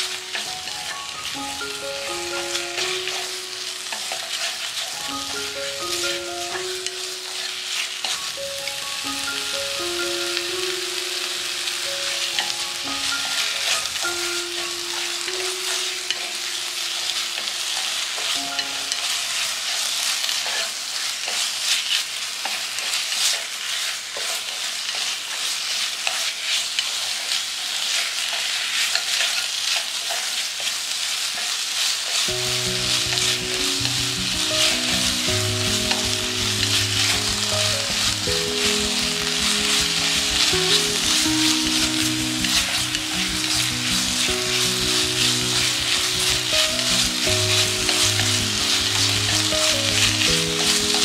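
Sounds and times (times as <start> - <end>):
background music: 0.0 - 17.6, 18.3 - 19.7, 32.3 - 51.0
chicken sizzling in a pan: 0.0 - 51.0.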